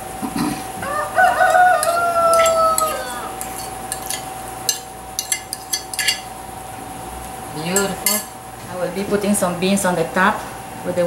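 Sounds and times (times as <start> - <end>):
rooster crowing: 0.8 - 3.8
utensil scraping ceramic plate: 1.3 - 6.3.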